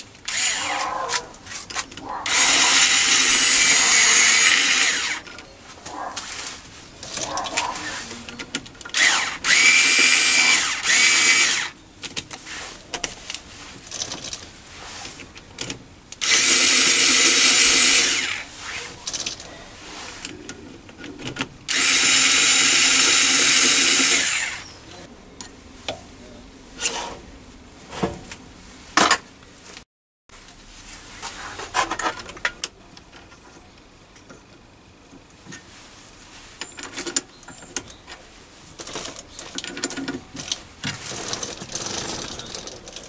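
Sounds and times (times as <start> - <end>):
electric screwdriver motor whine: 0.3 - 0.8, 2.3 - 5.2, 9.0 - 11.8, 16.2 - 18.4, 21.7 - 24.6.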